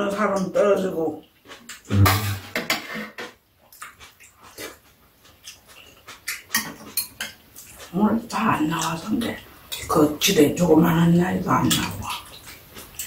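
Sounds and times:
chewing and smacking: 1.2 - 1.9, 3.6 - 10.4, 11.3 - 13.0
short low thump: 1.9 - 2.5.

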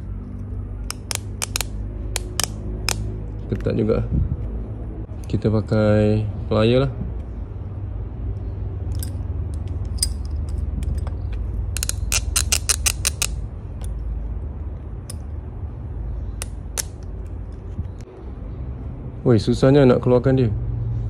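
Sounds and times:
low rumble: 1.8 - 12.1.

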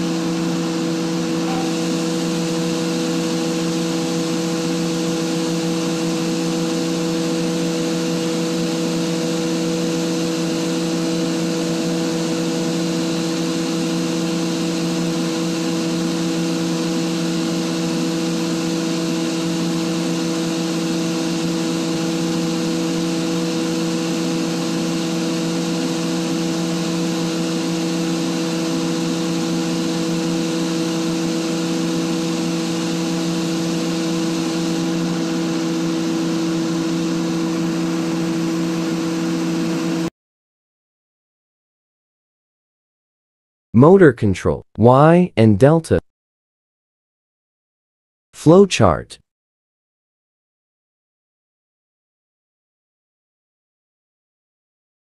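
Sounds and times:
air compressor humming: 0.0 - 9.3.

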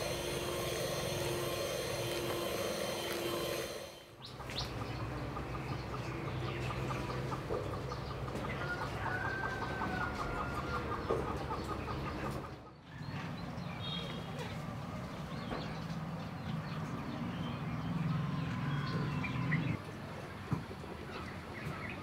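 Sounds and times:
steady hum: 0.0 - 4.2
chickens clucking: 4.2 - 13.4.

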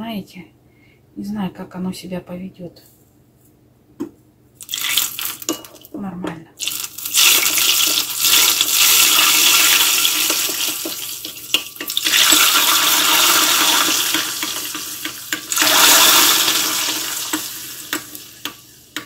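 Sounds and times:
hot oil sizzling in liquid: 4.6 - 5.8, 6.6 - 19.0.

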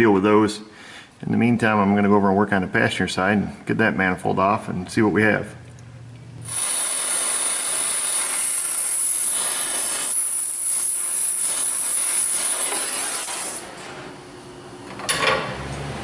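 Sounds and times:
torch flame hissing: 6.4 - 13.9.

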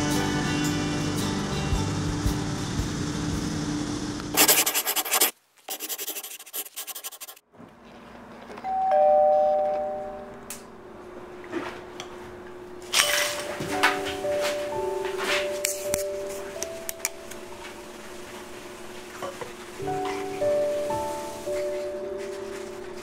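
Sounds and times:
two-note doorbell chime: 8.7 - 10.4.

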